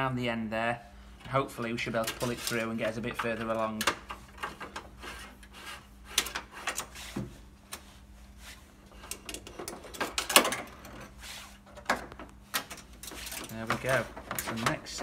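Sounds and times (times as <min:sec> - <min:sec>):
cable scraping: 0:04.4 - 0:07.1.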